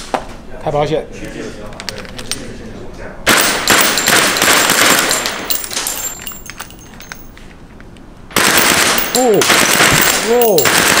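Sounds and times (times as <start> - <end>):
replica gun full-auto burst: 3.3 - 5.6, 8.3 - 11.0.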